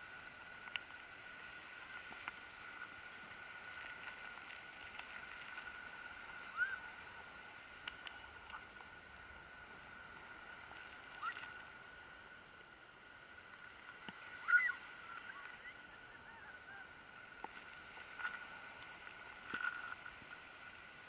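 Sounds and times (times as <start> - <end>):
faint bird chirps: 14.4 - 16.9.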